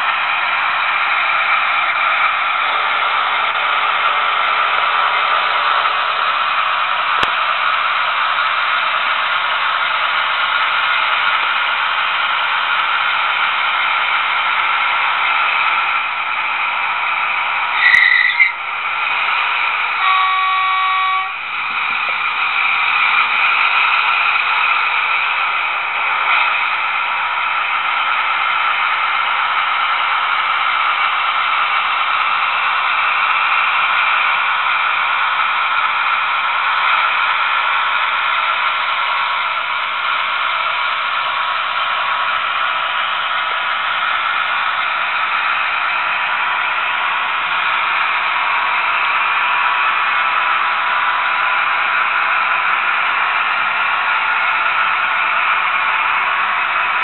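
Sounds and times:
model locomotive hissing whir: 0.0s - 57.0s
model locomotive horn chord: 20.0s - 21.7s.

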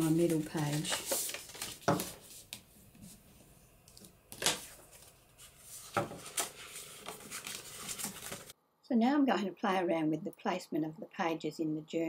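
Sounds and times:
paper rustling swishes: 0.0s - 3.3s, 4.0s - 8.5s.

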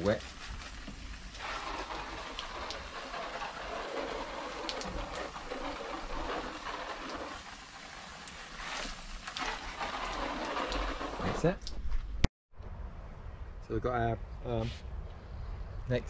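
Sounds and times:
water spraying from hose nozzle: 0.0s - 11.9s.

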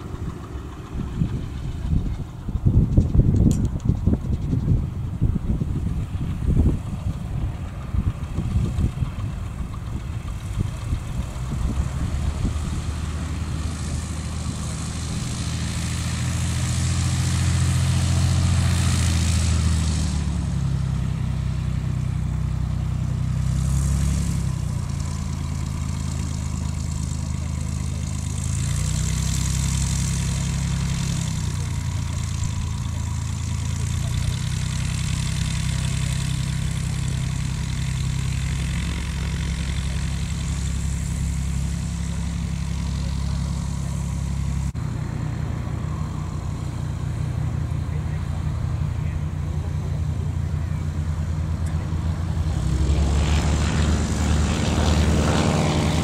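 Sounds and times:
light aircraft engine and propeller: 0.0s - 56.0s
wind buffeting microphone: 0.2s - 19.0s.

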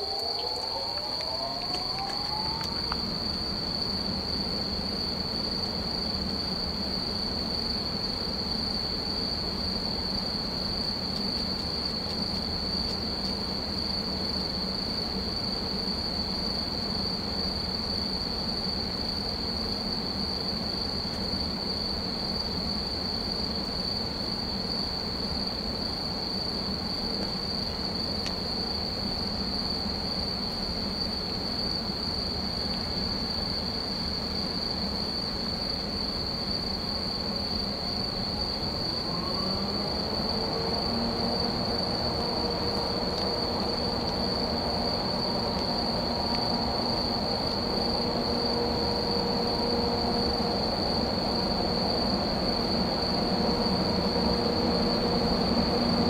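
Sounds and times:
locomotive cooling blowers humming: 38.0s - 56.0s.

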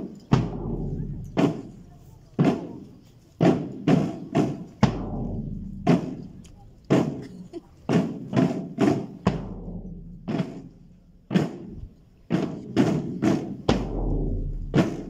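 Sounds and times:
bass drum strokes: 4.4s - 7.2s, 13.7s - 15.0s.

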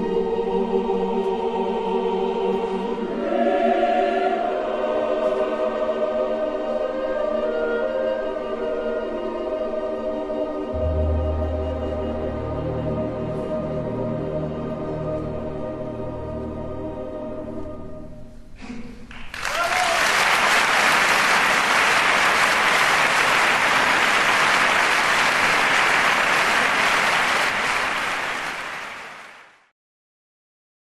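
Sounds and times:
music held chord: 0.0s - 18.4s
audience applause: 19.1s - 29.7s.

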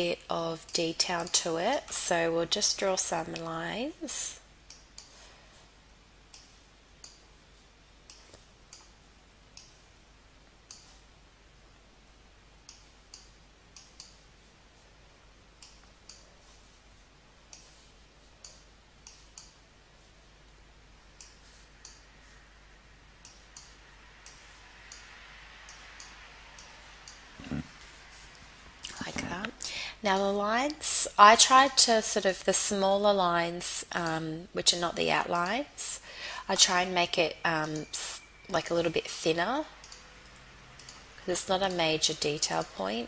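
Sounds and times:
faint computer mouse clicks: 23.2s - 25.1s, 40.8s - 41.0s.

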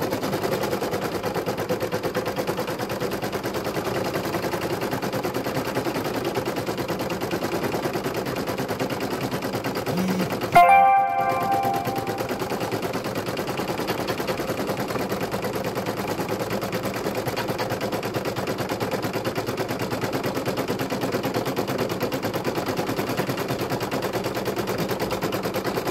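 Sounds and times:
short ringing tone: 9.9s - 12.9s.

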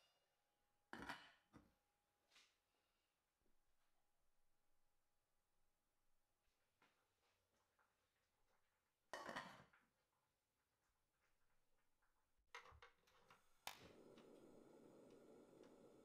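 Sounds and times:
gas flame rushing: 13.7s - 16.0s.

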